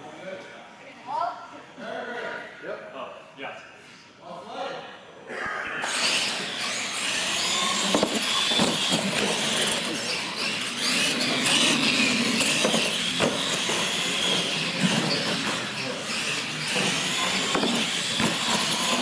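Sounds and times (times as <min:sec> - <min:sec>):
toy truck electric motors whining: 0:05.8 - 0:19.0.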